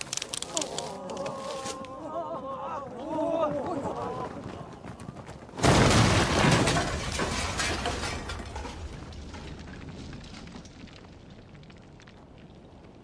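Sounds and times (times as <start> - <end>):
loud crash and breaking: 5.6 - 11.8
clattering debris: 5.6 - 13.0.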